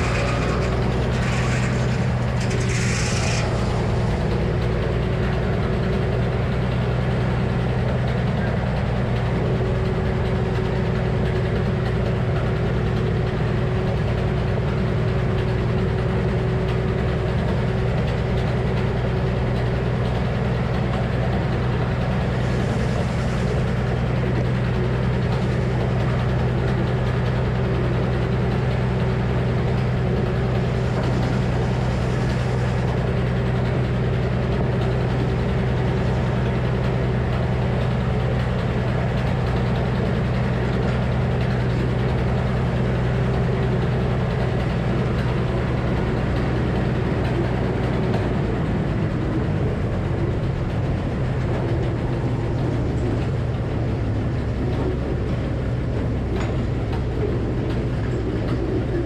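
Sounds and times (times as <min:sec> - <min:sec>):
circular saw blade spinning: 0:00.0 - 0:06.2
sawmill power unit droning: 0:00.0 - 0:59.0.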